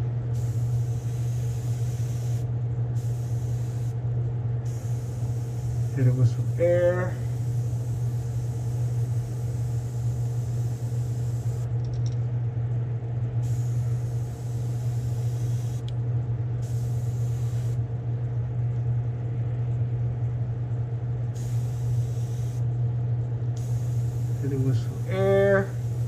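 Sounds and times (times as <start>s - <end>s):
low motor hum: 0.0s - 26.0s
airbrush hissing: 0.4s - 4.0s, 4.7s - 11.7s, 13.4s - 15.9s, 16.6s - 17.8s, 21.4s - 22.6s, 23.6s - 26.0s.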